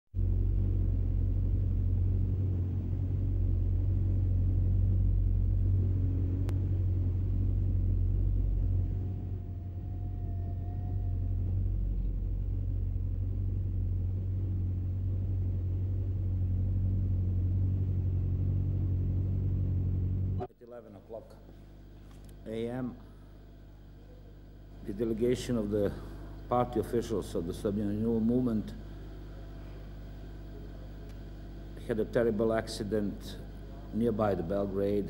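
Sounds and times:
faint wavering tone: 0.2s - 20.5s
low rumble of road traffic: 0.2s - 20.5s.

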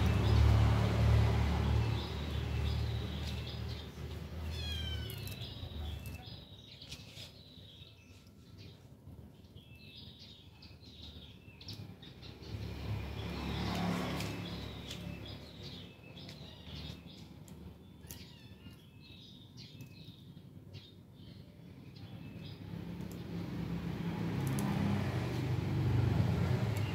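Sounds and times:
vehicle passing: 0.0s - 6.2s, 12.0s - 17.8s, 22.2s - 26.9s
small birds chirping: 0.0s - 26.9s.

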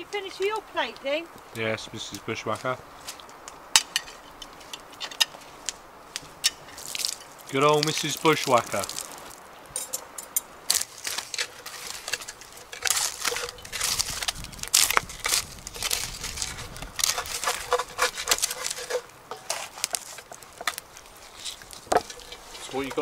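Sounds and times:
campfire crackling: 0.0s - 23.0s
logs knocking against stick: 10.7s - 23.0s.

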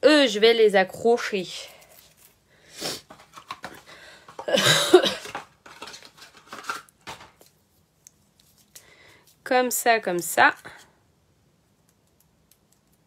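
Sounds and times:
person coughing: 4.4s - 5.4s.

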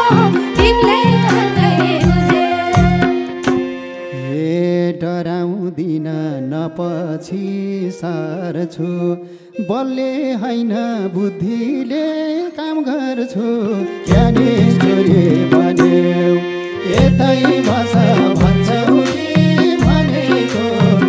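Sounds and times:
drum strikes: 0.0s - 3.8s, 14.1s - 16.0s, 17.0s - 21.0s.

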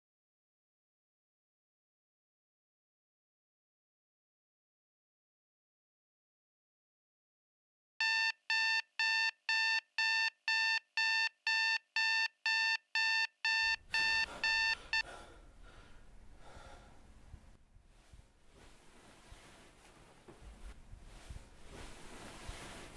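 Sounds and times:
digital alarm clock beeping: 8.0s - 15.0s
rustling: 17.9s - 22.9s.

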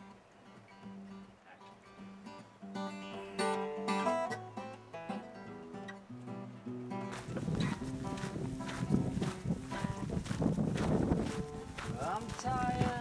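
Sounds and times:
plucked acoustic guitar melody: 0.0s - 13.0s.

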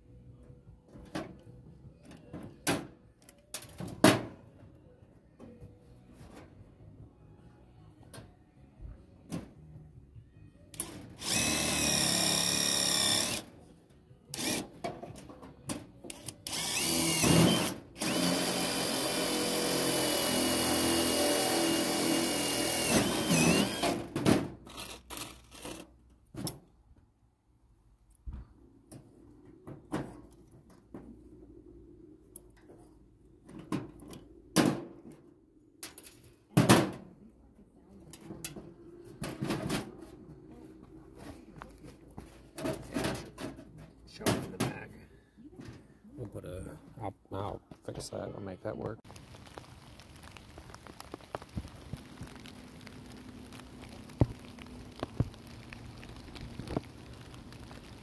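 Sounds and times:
power drill whining: 10.8s - 13.5s, 14.4s - 14.6s, 16.5s - 24.0s.

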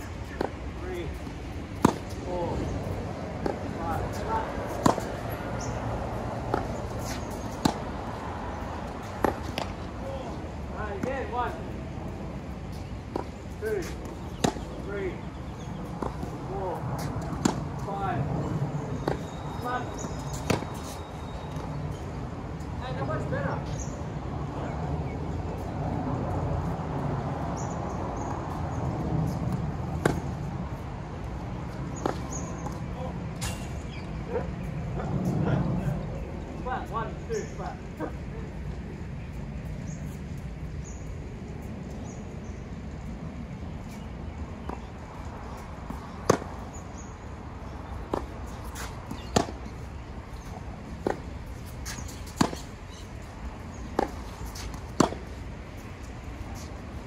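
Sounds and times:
tennis balls struck by rackets: 0.0s - 11.7s, 12.4s - 21.8s, 28.2s - 30.9s, 31.5s - 34.4s, 45.6s - 46.9s, 47.6s - 57.0s
faint distant tennis hits: 0.2s - 2.3s, 3.4s - 5.3s, 6.4s - 7.9s, 12.7s - 14.9s, 45.8s - 46.6s, 48.0s - 49.8s, 51.0s - 52.8s, 53.9s - 55.9s
loud tennis racquet hits: 46.2s - 46.6s, 48.1s - 49.7s, 51.0s - 52.7s, 53.9s - 55.3s.

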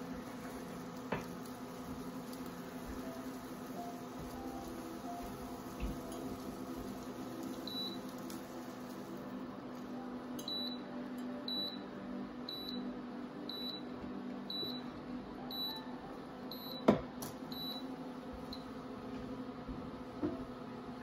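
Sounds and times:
induction hob beeping: 7.6s - 8.2s, 14.5s - 14.9s.

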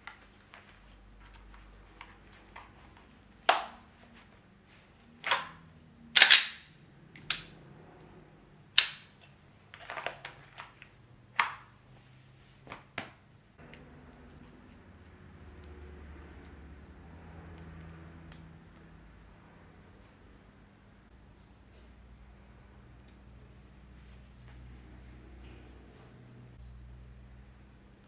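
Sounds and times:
plastic and metal snaps: 6.2s - 7.5s, 8.8s - 10.8s.

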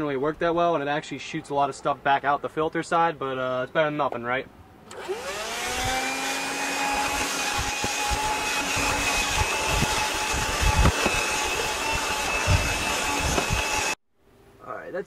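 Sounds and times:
handheld vacuum running: 4.9s - 14.0s.

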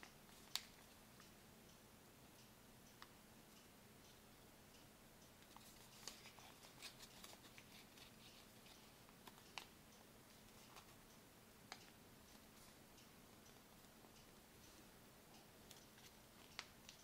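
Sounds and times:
paper crinkling and folding: 5.5s - 9.7s.

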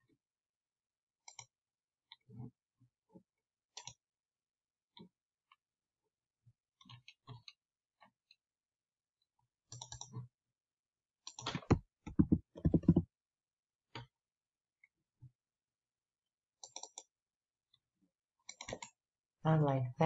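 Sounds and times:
computer mouse clicks: 3.8s - 4.0s, 9.7s - 10.1s, 11.3s - 13.0s, 16.6s - 17.1s, 18.5s - 19.0s
keyboard keystrokes: 11.4s - 13.0s.

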